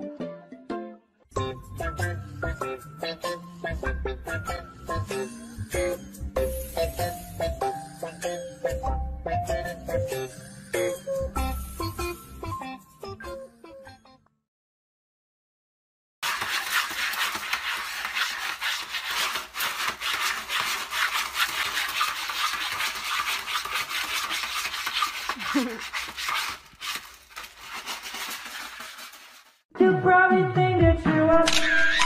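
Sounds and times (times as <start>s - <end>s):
cat scratching in pellet litter: 16.2s - 29.6s.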